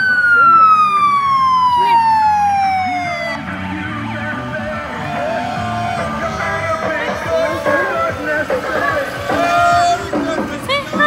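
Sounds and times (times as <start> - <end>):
fire truck siren wail: 0.0 - 10.2
music with singing: 2.5 - 11.0.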